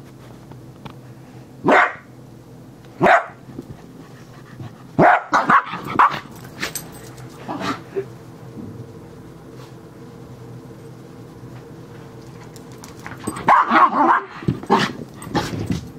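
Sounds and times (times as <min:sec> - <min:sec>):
small dog barking: 0:01.6 - 0:02.1, 0:03.0 - 0:03.4, 0:05.0 - 0:06.3, 0:13.4 - 0:14.9.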